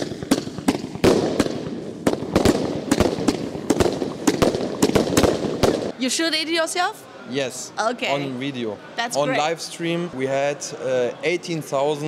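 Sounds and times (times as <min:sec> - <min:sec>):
firework bangs: 0:00.0 - 0:06.0
firework crackling: 0:00.0 - 0:06.0.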